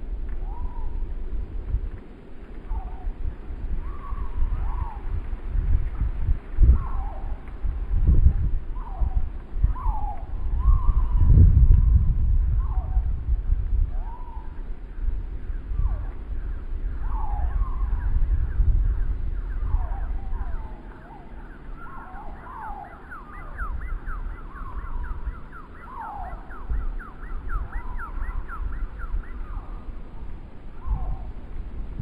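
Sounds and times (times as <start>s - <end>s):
wind gusting across microphone: 0.0s - 32.0s.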